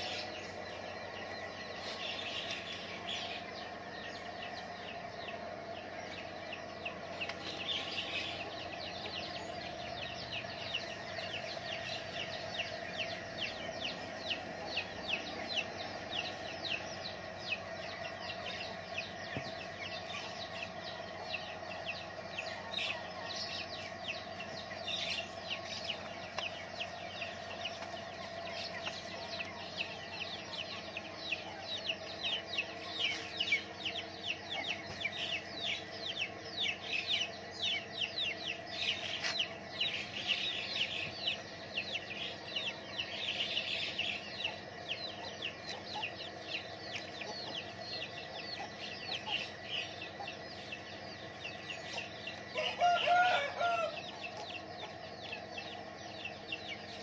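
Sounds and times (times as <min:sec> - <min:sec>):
chicks chirping: 0:00.0 - 0:57.0
chicken clucking call: 0:52.0 - 0:55.0.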